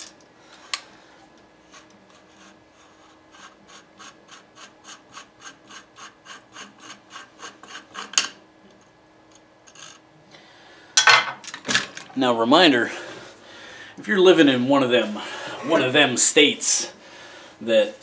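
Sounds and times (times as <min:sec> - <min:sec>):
threads rasping: 0:01.6 - 0:10.0.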